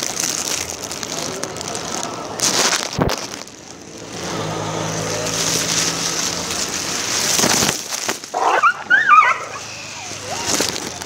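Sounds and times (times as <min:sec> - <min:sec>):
vehicle engine running: 0:03.8 - 0:08.4.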